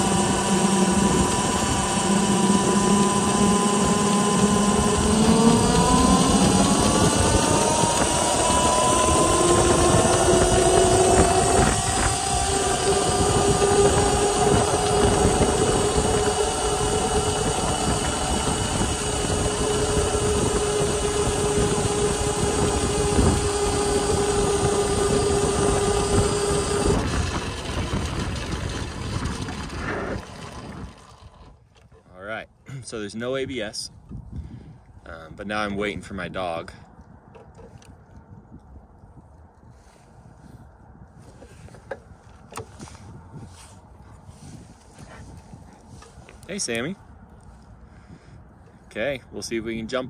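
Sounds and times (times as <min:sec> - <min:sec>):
electric motor whine: 0:00.0 - 0:31.9, 0:41.2 - 0:48.1
wind and tyre rush: 0:02.8 - 0:31.7, 0:33.0 - 0:49.6.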